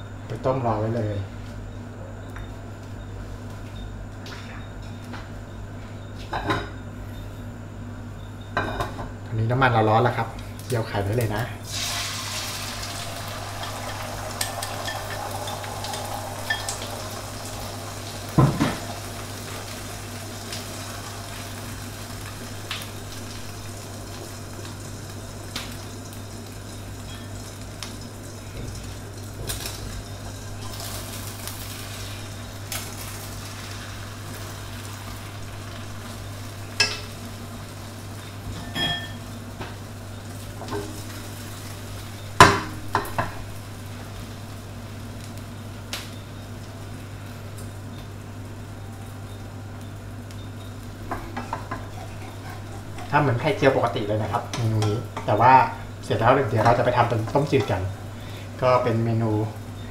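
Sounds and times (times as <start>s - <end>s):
eggs sizzling in hot oil: 10.6s - 59.9s.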